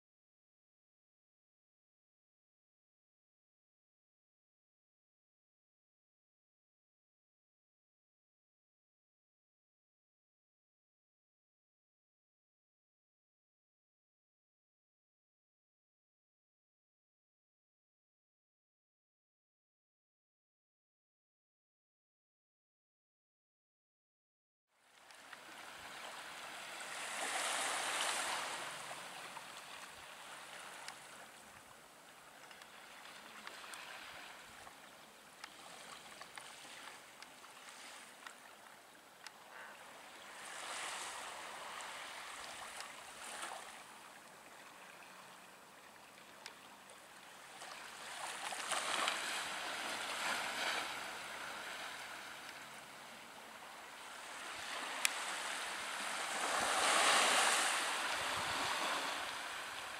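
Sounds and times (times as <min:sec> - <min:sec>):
small waves washing onto shore: 0:24.8 - 0:59.9.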